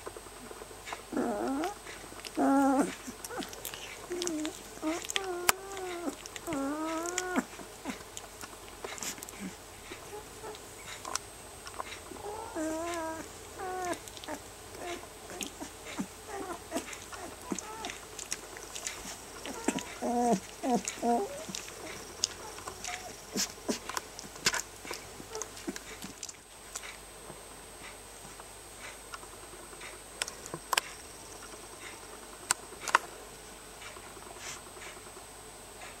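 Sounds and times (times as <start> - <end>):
puppy mouth clicks: 0.9 - 12.0
puppies whining: 1.1 - 26.2.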